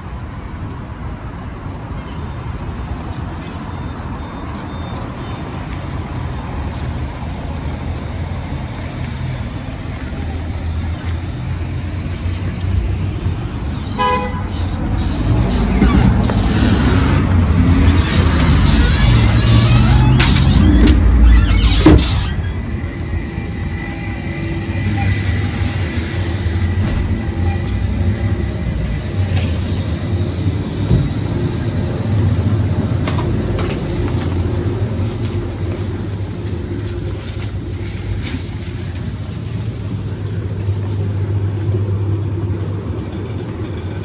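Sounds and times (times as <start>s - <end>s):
street traffic: 0.0s - 44.0s
vehicle engine humming: 0.0s - 44.0s
thin high whine: 18.2s - 31.0s.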